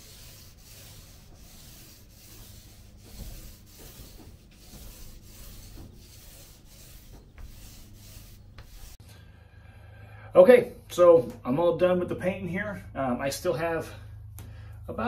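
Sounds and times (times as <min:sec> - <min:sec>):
paint rubbing strokes on countertop: 0:00.0 - 0:09.0.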